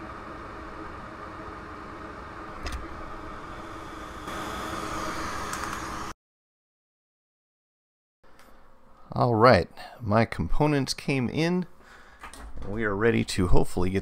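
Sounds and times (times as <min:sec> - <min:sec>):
hot air station blowing: 0:00.0 - 0:06.2.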